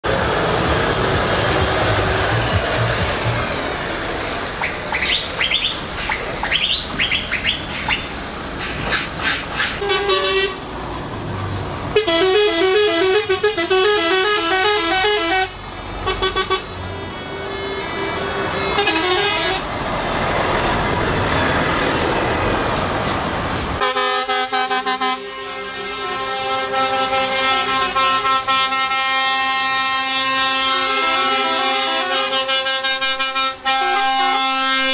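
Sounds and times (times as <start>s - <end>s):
diesel engine noise: 0.0s - 34.9s
truck air horns: 5.0s - 10.7s, 11.9s - 19.8s, 23.8s - 34.9s.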